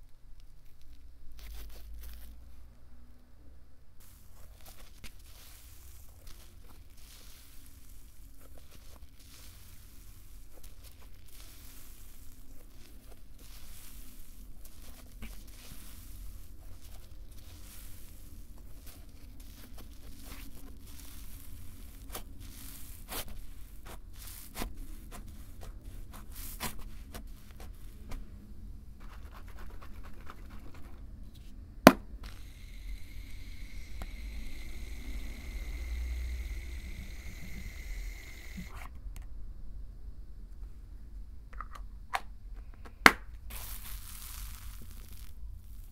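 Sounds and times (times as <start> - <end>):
slime squishing and crackling: 0.0 - 2.6, 4.0 - 28.4, 43.5 - 45.9
aerosol foam spraying hiss: 4.0 - 16.6, 32.2 - 38.9.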